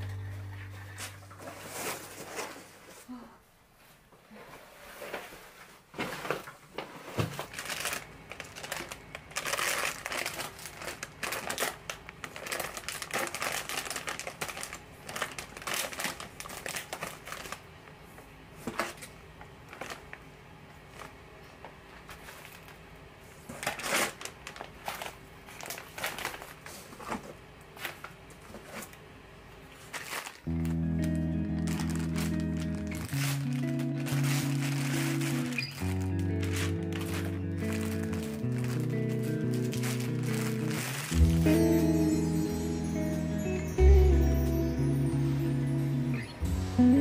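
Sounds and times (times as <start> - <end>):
steady low hum: 0.0 - 3.6
crinkling and rustling: 0.1 - 3.1, 3.8 - 41.6.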